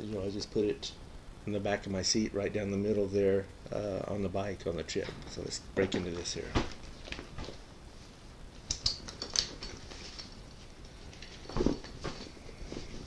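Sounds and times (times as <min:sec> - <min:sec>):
bag rustle and thump: 0:11.4 - 0:13.0.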